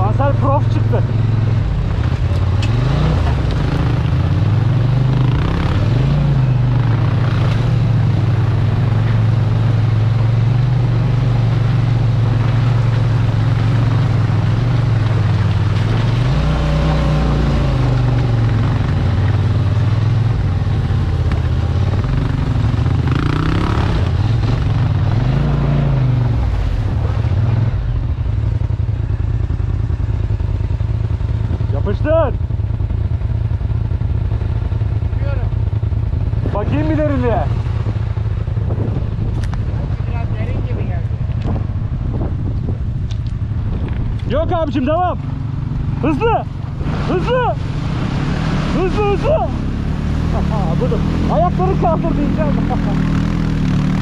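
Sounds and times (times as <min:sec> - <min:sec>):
off-road vehicle engine revving: 0:00.0 - 0:54.0.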